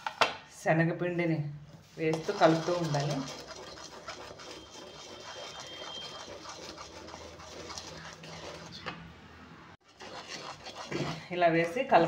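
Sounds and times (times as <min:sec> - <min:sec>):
wooden spatula scraping a pan: 0:01.8 - 0:09.0, 0:09.8 - 0:11.8.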